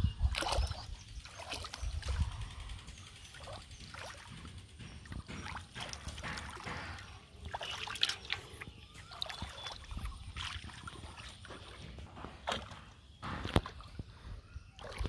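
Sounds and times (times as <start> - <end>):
hands splashing in muddy water: 5.2 - 14.0.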